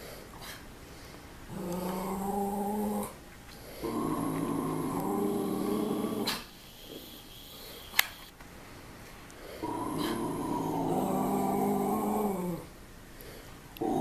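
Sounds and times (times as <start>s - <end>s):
long steady growls: 1.5s - 6.4s, 9.5s - 12.8s, 13.8s - 14.0s.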